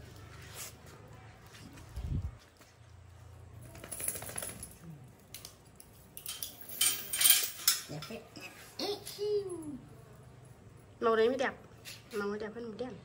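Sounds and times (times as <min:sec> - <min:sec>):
metal chain leash clinking: 0:03.6 - 0:08.2.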